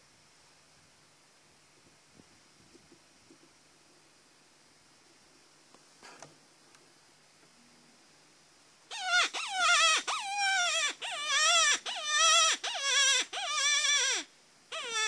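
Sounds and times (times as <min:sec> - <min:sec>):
predator call distress cries: 0:08.9 - 0:15.0.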